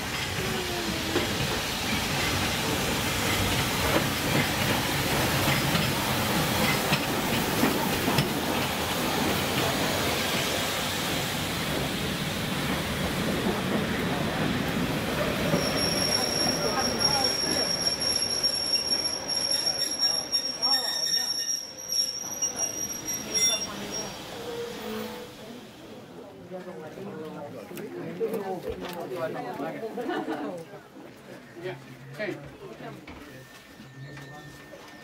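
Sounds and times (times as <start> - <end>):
wheels clattering on rails: 0.0 - 10.5
steam hissing: 0.0 - 20.7.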